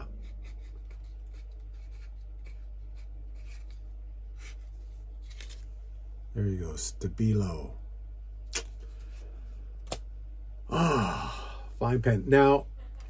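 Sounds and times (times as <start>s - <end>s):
steady low hum: 0.0s - 13.0s
pen scratching on paper: 0.2s - 3.8s.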